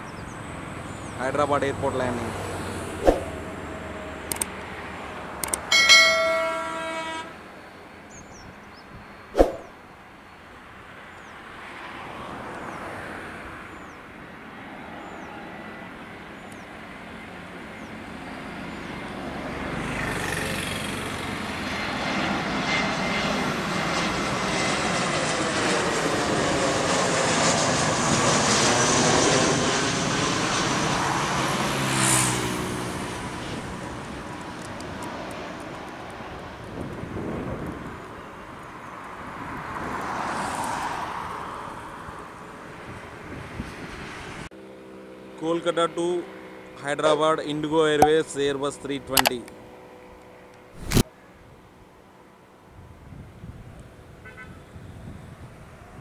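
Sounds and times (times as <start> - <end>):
airliner passing overhead: 0.0 - 56.0
vehicle horn: 5.7 - 7.4, 54.2 - 54.6
sharp knock: 9.4 - 9.7.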